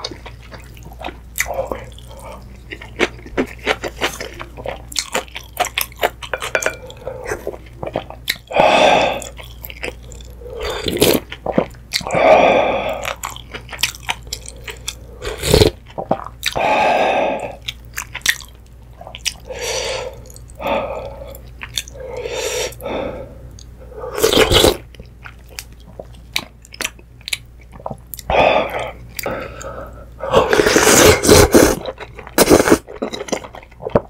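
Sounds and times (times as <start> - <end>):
chewing: 0.0 - 8.5, 9.2 - 12.2, 13.0 - 16.6, 17.6 - 19.5
slurping noodles: 24.1 - 24.8, 30.3 - 33.0.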